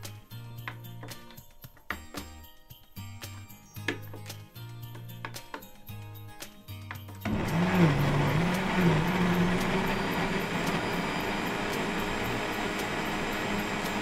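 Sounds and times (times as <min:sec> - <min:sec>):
blender motor whirring: 0:07.3 - 0:14.0.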